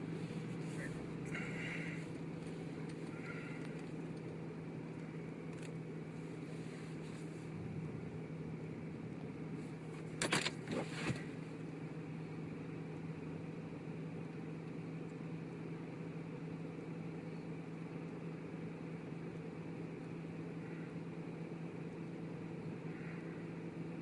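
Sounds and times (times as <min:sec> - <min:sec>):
low hum and hiss inside car: 0:00.0 - 0:24.0.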